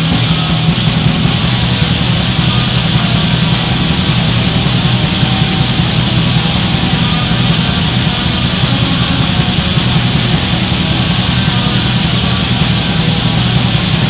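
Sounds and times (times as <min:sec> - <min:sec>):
distorted electric guitar: 0:00.0 - 0:14.0.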